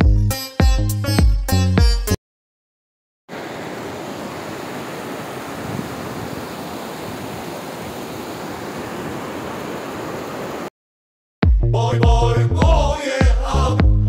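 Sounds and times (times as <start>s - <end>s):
stream rushing over boulders: 3.3s - 10.7s.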